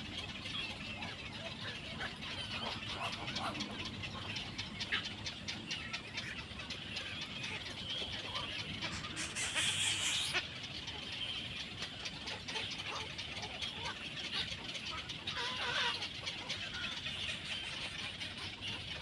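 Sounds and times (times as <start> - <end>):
bird chicks begging chatter: 0.0 - 19.0.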